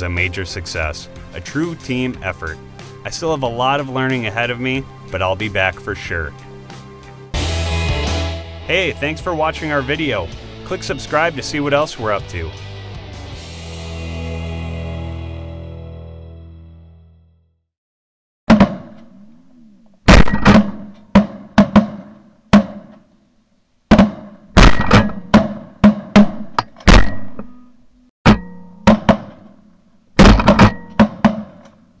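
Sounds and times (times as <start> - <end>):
shotgun shots: 20.1 - 23.0, 23.9 - 27.4.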